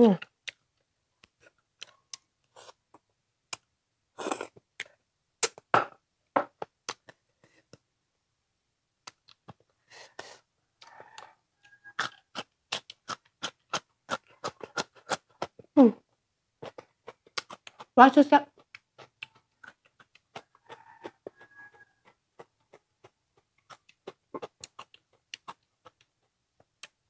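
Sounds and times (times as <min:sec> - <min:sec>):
wet chewing: 0:00.2 - 0:03.6, 0:10.8 - 0:15.7, 0:16.6 - 0:27.0
lip smacks and clicks: 0:00.2 - 0:03.7, 0:04.5 - 0:05.7, 0:06.8 - 0:07.8, 0:09.0 - 0:09.7, 0:16.7 - 0:18.0, 0:18.6 - 0:27.0.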